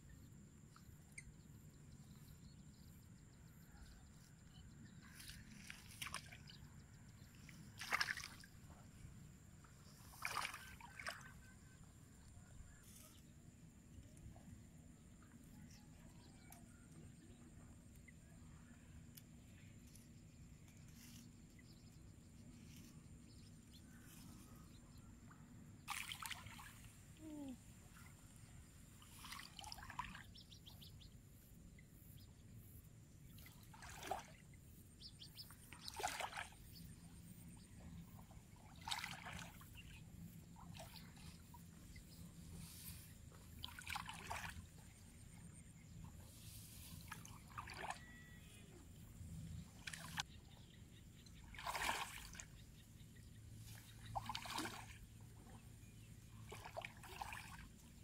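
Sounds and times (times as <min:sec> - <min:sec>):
fish splashing in shallow water: 0:05.0 - 0:09.1, 0:09.7 - 0:12.2, 0:25.8 - 0:27.6, 0:28.4 - 0:30.8, 0:33.2 - 0:50.6, 0:51.3 - 0:58.0.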